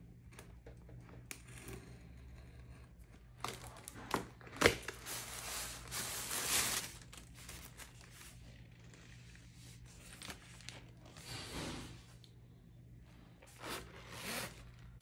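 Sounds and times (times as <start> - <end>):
packaging rustling and scraping: 3.0 - 12.2.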